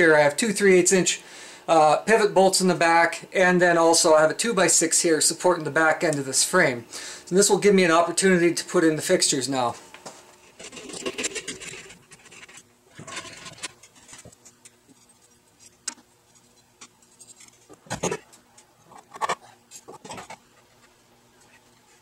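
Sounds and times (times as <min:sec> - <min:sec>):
metal hardware rubbing and clicking: 0:10.4 - 0:20.9.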